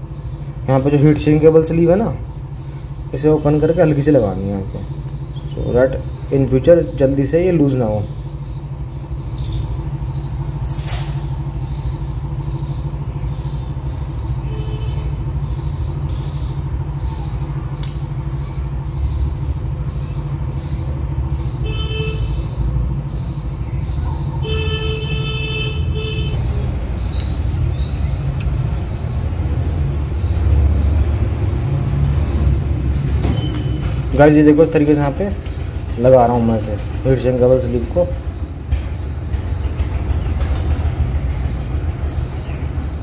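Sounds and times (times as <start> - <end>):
low rumble of road traffic: 0.0 - 43.0
vehicle horns honking: 14.4 - 15.2, 21.6 - 22.5, 24.4 - 26.7.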